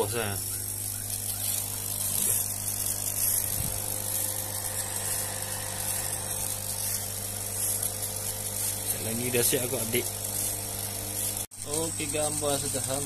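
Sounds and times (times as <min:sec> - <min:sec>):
laser engraver electric hum: 0:00.0 - 0:13.0
air assist hiss: 0:01.4 - 0:13.0.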